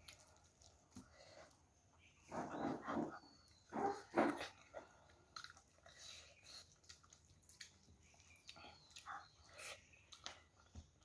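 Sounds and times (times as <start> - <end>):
chewing and lip-smacking: 0.0 - 1.6, 4.3 - 11.0.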